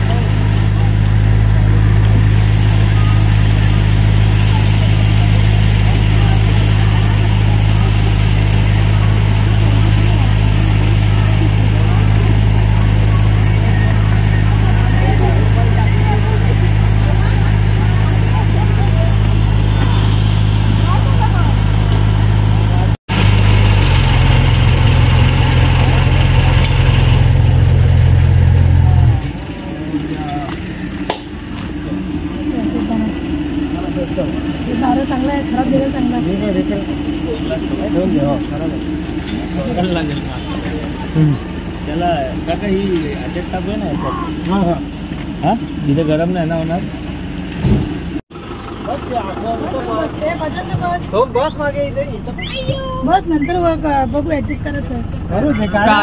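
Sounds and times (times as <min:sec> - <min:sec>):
minibus engine idling: 0:00.0 - 0:56.0.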